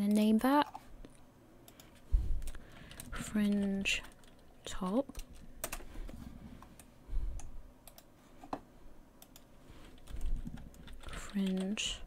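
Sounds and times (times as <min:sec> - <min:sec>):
keyboard typing: 0:01.7 - 0:05.9, 0:06.7 - 0:08.1, 0:09.2 - 0:12.0.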